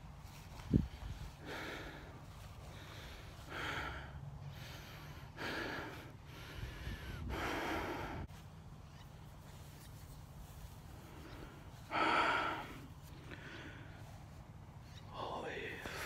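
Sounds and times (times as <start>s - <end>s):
steady low rumble: 0.0s - 16.0s
person breathing heavily: 0.2s - 8.5s, 10.6s - 16.0s.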